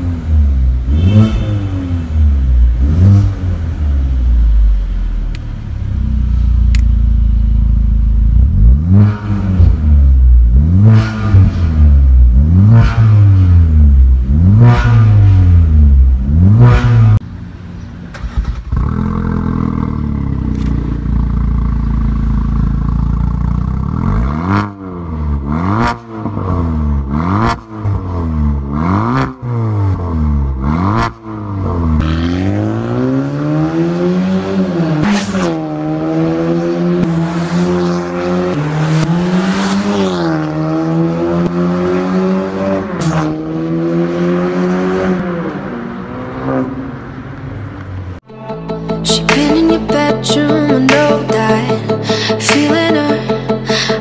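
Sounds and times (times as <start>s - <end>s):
car engine revving and idling: 0.0s - 48.2s
exhaust cracks: 18.0s - 24.5s.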